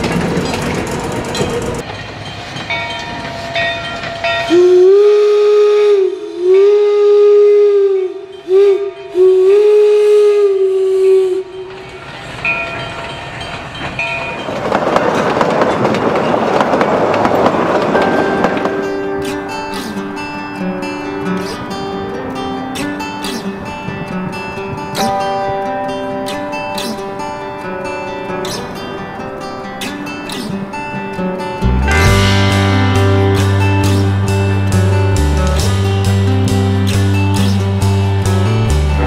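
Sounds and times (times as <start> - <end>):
passing train rumble: 0.0 - 39.0
train horn blasts: 4.5 - 11.8.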